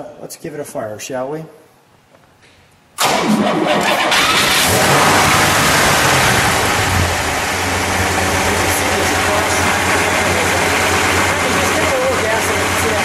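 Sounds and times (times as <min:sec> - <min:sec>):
car engine idling: 0:03.5 - 0:13.0.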